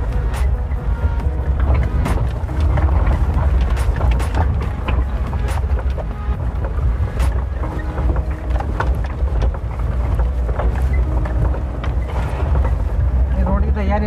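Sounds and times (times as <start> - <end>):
vehicle body knocks and rattles: 0.0 - 13.3
engine and road rumble: 0.0 - 14.0.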